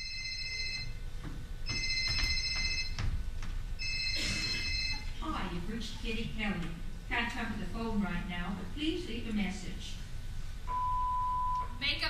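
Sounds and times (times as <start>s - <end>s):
electronic telephone ringing: 0.0s - 1.0s, 1.7s - 3.0s, 3.8s - 5.1s.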